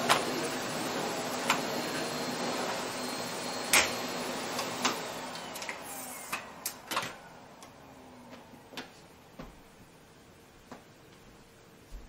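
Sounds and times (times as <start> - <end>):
vacuum cleaner motor winding down: 0.0 - 8.7.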